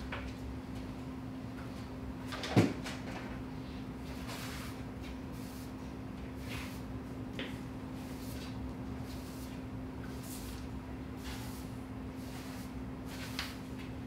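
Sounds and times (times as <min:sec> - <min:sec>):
steady low hum: 0:00.0 - 0:14.0
push broom sweeping concrete: 0:04.1 - 0:05.8, 0:06.4 - 0:06.9, 0:08.0 - 0:13.9.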